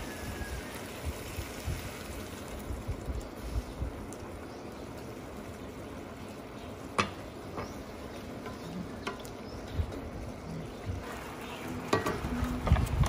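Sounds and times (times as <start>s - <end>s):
simmering sauce hiss: 0.0s - 9.5s
utensils clinking on pots: 11.8s - 12.7s.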